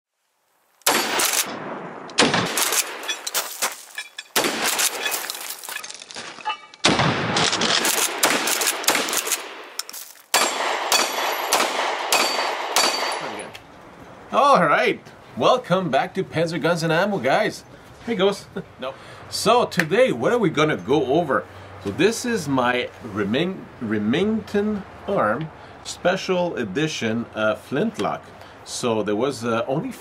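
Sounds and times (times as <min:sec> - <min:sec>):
gunshots with echo: 0:00.9 - 0:03.1, 0:06.8 - 0:13.5.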